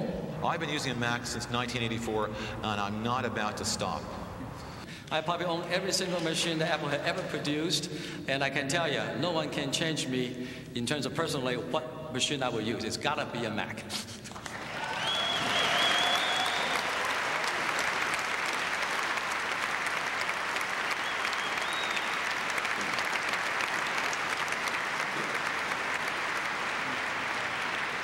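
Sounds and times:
large audience applauding: 14.4 - 28.0
shrill whistle: 14.8 - 16.9, 20.9 - 22.2.

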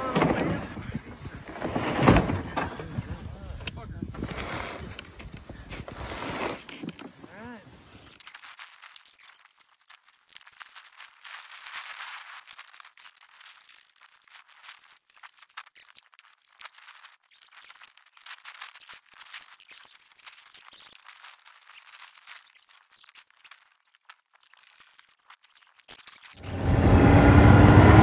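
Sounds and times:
straps rustling and clicking: 4.2 - 26.7.

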